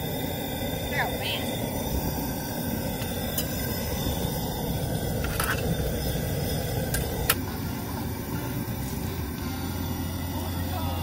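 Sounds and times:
gas burner roaring: 0.0 - 11.0.

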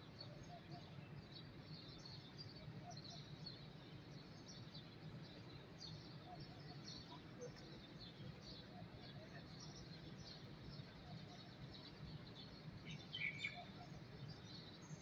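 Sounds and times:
small birds chirping: 0.1 - 15.0.

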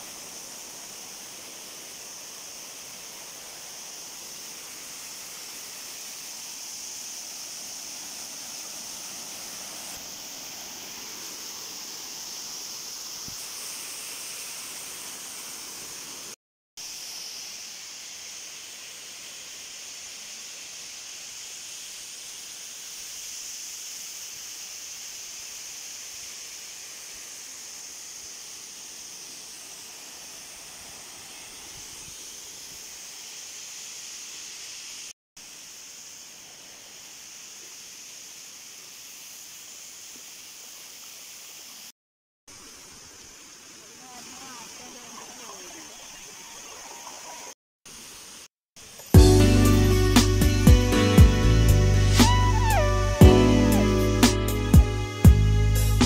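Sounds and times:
waterfall rushing: 42.5 - 47.6.

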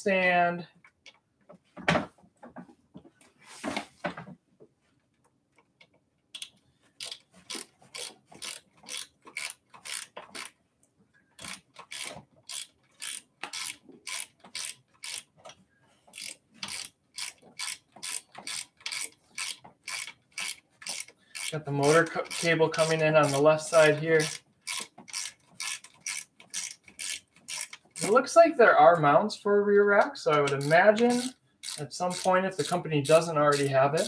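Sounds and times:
ratchet wrench clicking: 6.4 - 10.5, 11.4 - 15.3, 16.1 - 28.1, 30.5 - 34.0.

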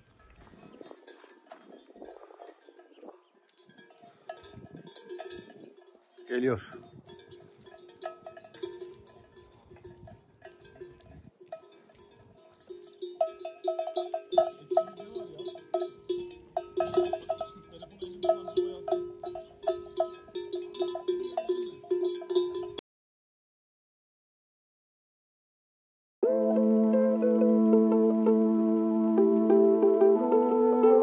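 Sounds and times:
livestock bells clanking: 0.0 - 22.8.

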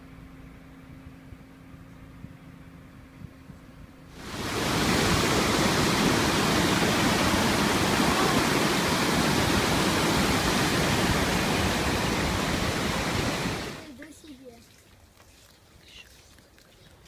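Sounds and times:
waterfall rushing: 4.2 - 13.9.

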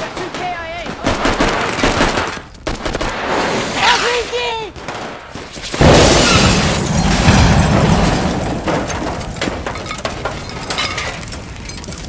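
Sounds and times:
falling debris knocks: 5.6 - 12.0
explosion rumble: 5.8 - 12.0.

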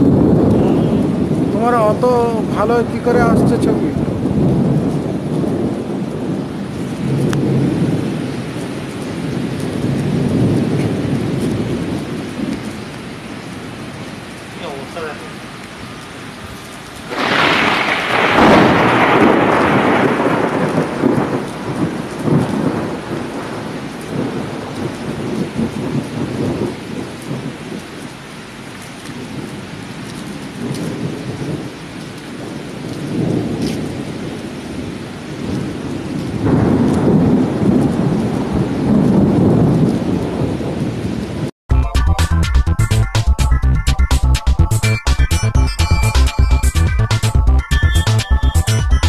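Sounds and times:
thunder: 0.0 - 12.8, 17.0 - 28.1, 29.0 - 41.5
rain: 0.0 - 49.0.

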